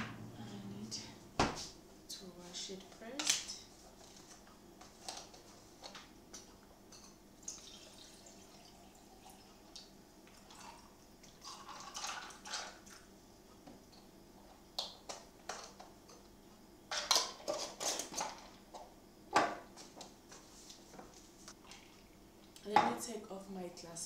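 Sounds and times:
juice pouring over ice: 0:07.4 - 0:09.6.

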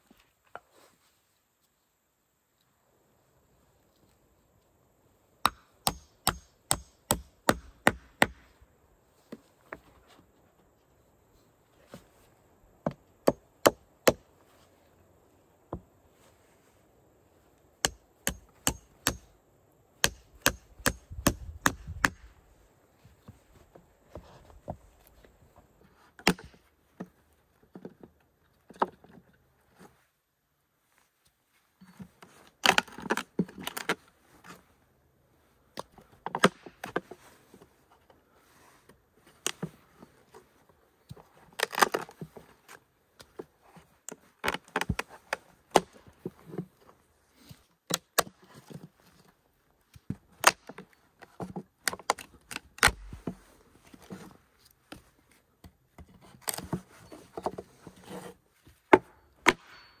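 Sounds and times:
hatchet chopping wood: 0:05.4 - 0:08.5, 0:12.8 - 0:14.2, 0:17.8 - 0:19.3, 0:20.0 - 0:22.3, 0:26.2 - 0:26.6, 0:36.3 - 0:37.0, 0:45.7 - 0:46.0, 0:50.4 - 0:50.8, 0:58.9 - 1:00.0.

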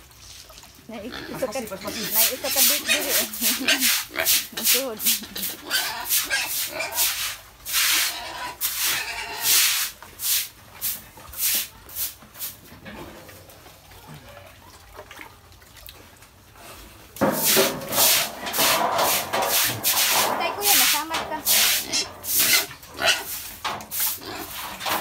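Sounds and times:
piglets snuffling and snorting: 0:01.0 - 0:09.9.

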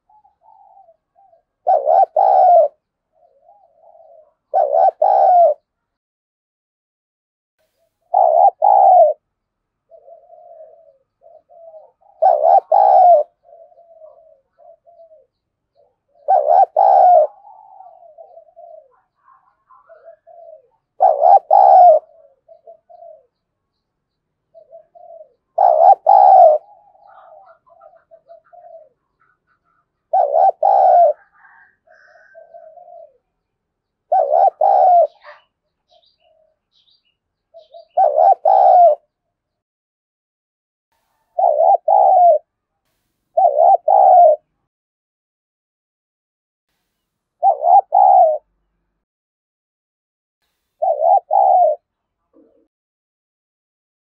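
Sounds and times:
dove cooing: 0:00.0 - 0:05.8, 0:07.8 - 0:23.8, 0:24.4 - 0:39.2, 0:41.0 - 0:42.6, 0:43.4 - 0:44.5, 0:47.4 - 0:48.6, 0:50.8 - 0:52.7.

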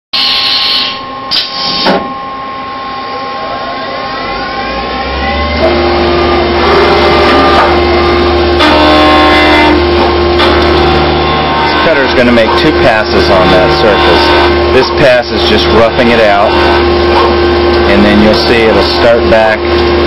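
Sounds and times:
spindle whining: 0:01.0 - 0:20.0
coolant flow hum: 0:04.8 - 0:20.0
end mill cutting: 0:04.8 - 0:20.0.

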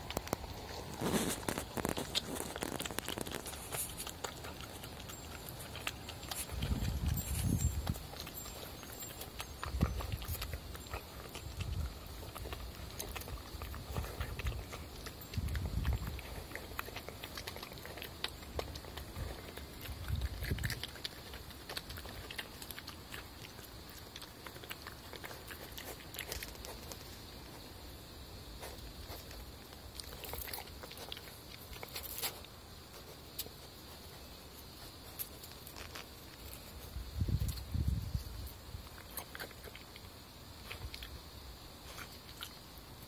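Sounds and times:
badger snuffling and chewing: 0:00.0 - 0:43.0.

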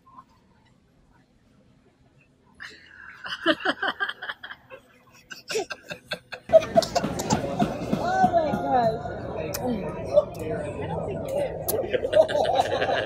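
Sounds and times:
person laughing: 0:05.2 - 0:07.5.

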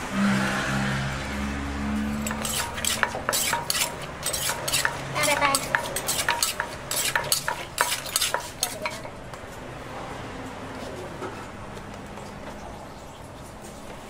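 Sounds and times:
pestle pounding in mortar: 0:02.2 - 0:09.4.

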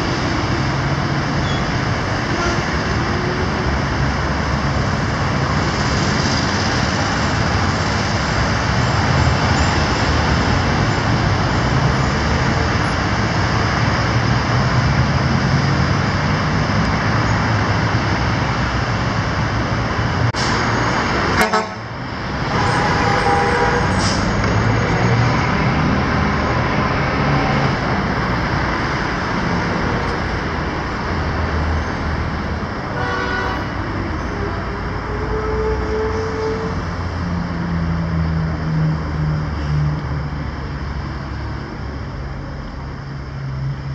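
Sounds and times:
road traffic passing: 0:00.0 - 0:43.9
car horn honking: 0:21.4 - 0:21.8, 0:22.6 - 0:24.0, 0:32.9 - 0:33.7.

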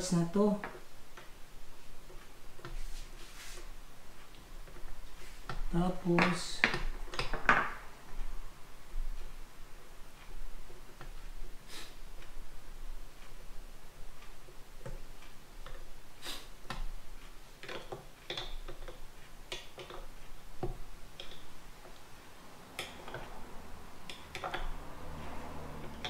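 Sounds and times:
plastic parts clicking and tapping: 0:17.6 - 0:22.0, 0:24.1 - 0:24.7.

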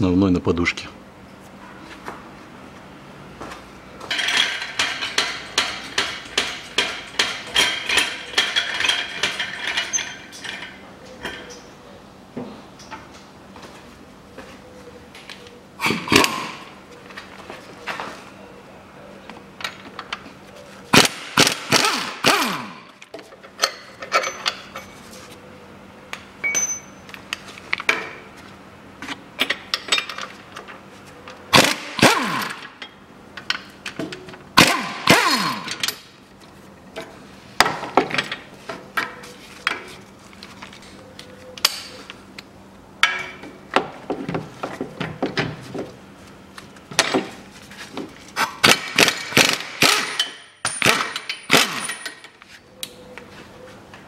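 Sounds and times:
impact wrench hammering: 0:04.1 - 0:09.6, 0:21.0 - 0:23.0, 0:31.6 - 0:33.0, 0:34.6 - 0:36.0, 0:48.6 - 0:52.2.

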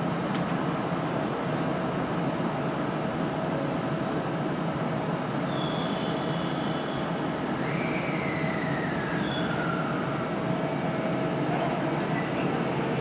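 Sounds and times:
constant noise: 0:00.0 - 0:13.0
train equipment humming: 0:08.4 - 0:13.0.

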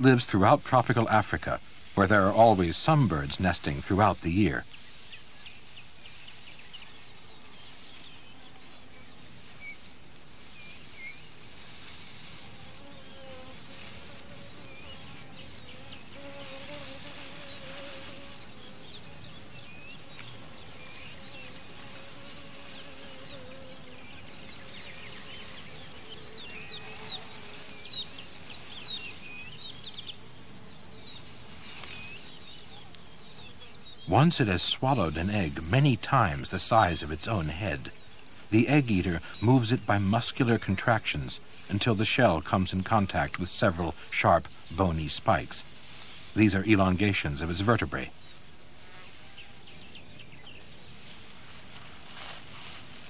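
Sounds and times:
insects trilling: 0:00.0 - 0:53.0
bird chirps: 0:22.6 - 0:30.2, 0:46.4 - 0:50.8.

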